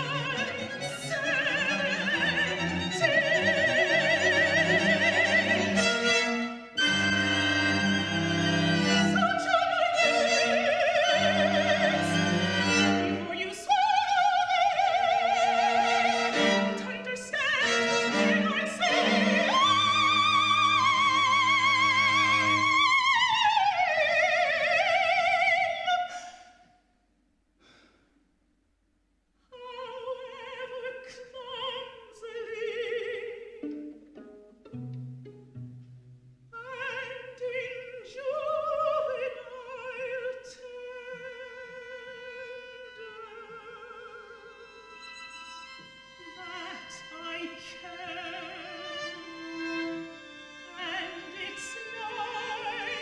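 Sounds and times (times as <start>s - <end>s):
string quartet playing: 0.0s - 23.8s, 33.4s - 36.5s, 42.0s - 53.0s
soprano singing with vibrato: 0.0s - 26.7s, 29.5s - 33.7s, 36.5s - 45.2s, 45.8s - 53.0s.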